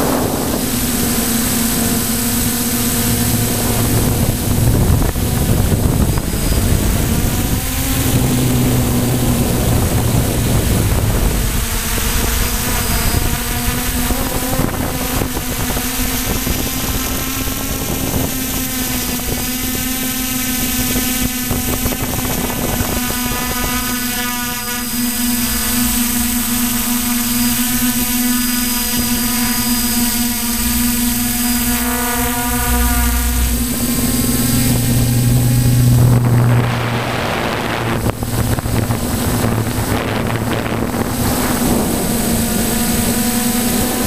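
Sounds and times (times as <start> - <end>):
drone propellers whining: 0.0 - 44.0
low rumble: 1.8 - 13.9, 30.3 - 42.2.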